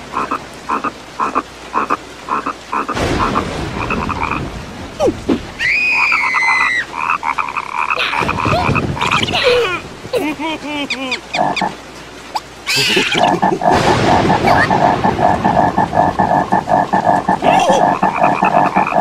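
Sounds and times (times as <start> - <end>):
frogs croaking: 0.0 - 4.6, 5.9 - 9.9, 10.8 - 19.0
cartoon character high-pitched cry: 12.7 - 13.4.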